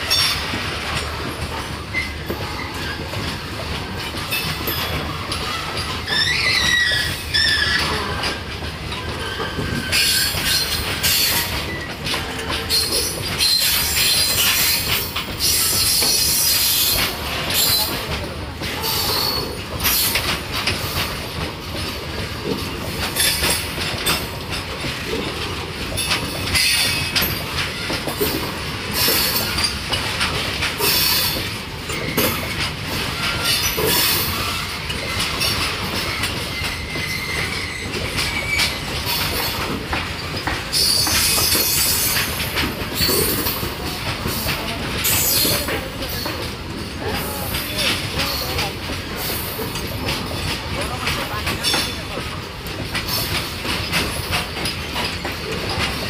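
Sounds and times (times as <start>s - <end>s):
train wheels clattering over joints: 0.0s - 56.0s
high-pitched wheel squeal: 5.5s - 8.1s, 9.1s - 11.9s, 36.1s - 38.9s.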